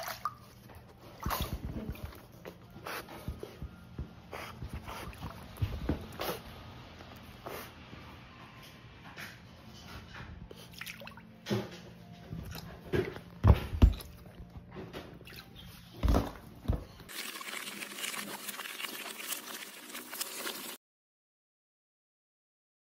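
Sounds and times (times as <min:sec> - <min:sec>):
water sloshing and dripping: 0:00.0 - 0:02.3, 0:10.6 - 0:20.8
heavy splashes and thumps: 0:16.0 - 0:17.6.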